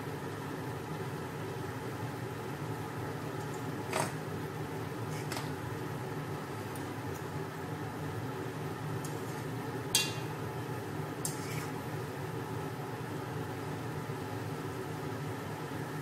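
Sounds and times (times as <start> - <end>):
steady electrical hum: 0.0 - 16.0
metal clink on pot: 9.9 - 10.4
fork and spoon tossing noodles: 11.2 - 11.8.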